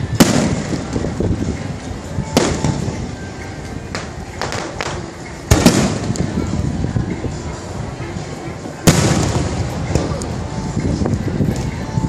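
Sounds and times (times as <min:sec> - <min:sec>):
fireworks bursting: 0:00.0 - 0:03.1, 0:03.9 - 0:06.6, 0:08.8 - 0:10.6.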